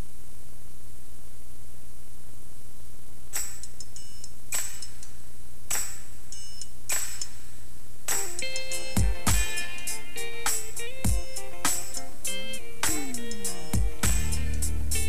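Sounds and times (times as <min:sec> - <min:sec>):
electrical hum and hiss: 0:00.0 - 0:15.0
metallic percussion strikes: 0:08.1 - 0:15.0
pitched instrument notes: 0:08.1 - 0:15.0.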